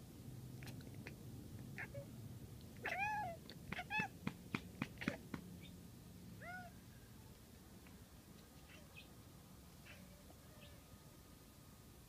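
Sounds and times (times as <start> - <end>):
cat chirping meows: 2.8 - 4.2, 6.4 - 6.8
cat clicking chatter: 2.8 - 5.4.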